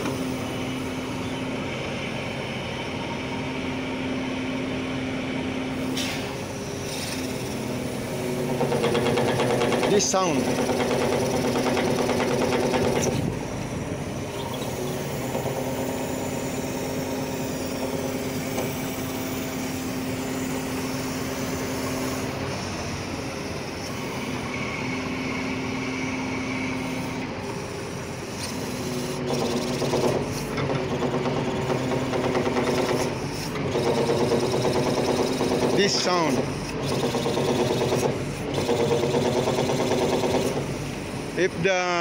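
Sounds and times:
hydraulic crane humming: 0:00.0 - 0:42.0.

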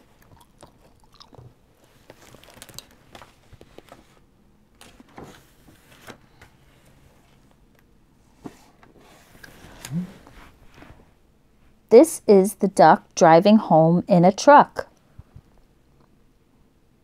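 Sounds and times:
pages turning: 0:01.9 - 0:04.2, 0:04.8 - 0:07.4.

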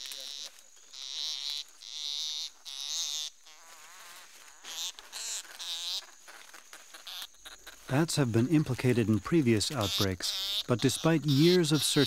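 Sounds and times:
bat squealing: 0:09.5 - 0:12.0.

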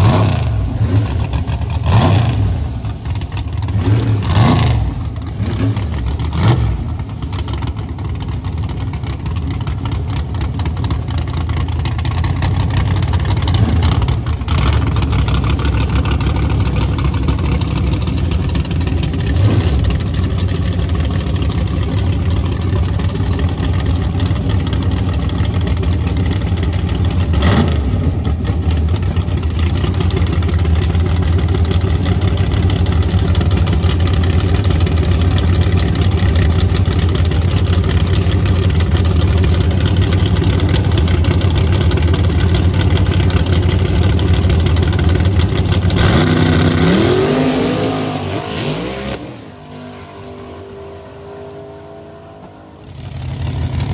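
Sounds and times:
engine revving blips: 0:00.0 - 0:02.9, 0:03.7 - 0:06.9
engine idling loudly: 0:00.0 - 0:47.9, 0:52.7 - 0:53.9.

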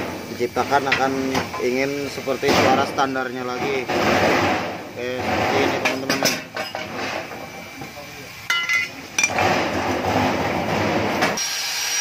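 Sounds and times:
metal pieces clinking and clattering: 0:08.5 - 0:09.5.

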